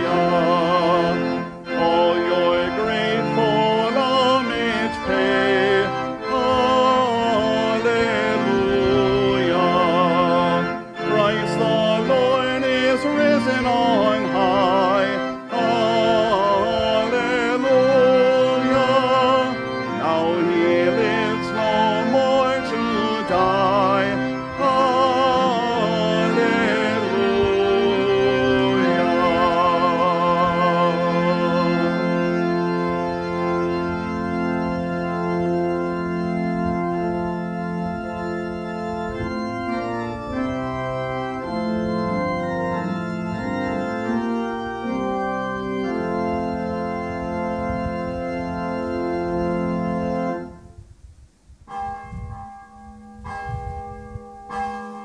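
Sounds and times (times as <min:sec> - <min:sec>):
voices singing with vibrato: 0:00.0 - 0:32.2
pipe organ playing: 0:00.0 - 0:51.0, 0:51.7 - 0:55.0
church bell ringing: 0:51.7 - 0:55.0.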